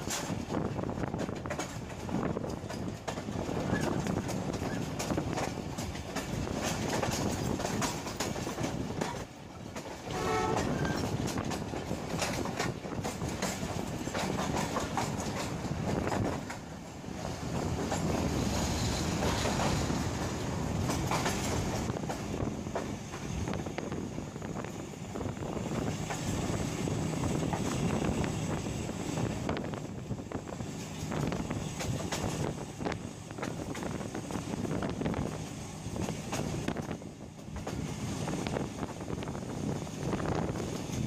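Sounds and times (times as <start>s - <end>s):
train wheels clattering: 0.0s - 41.0s
train horn: 10.1s - 11.0s.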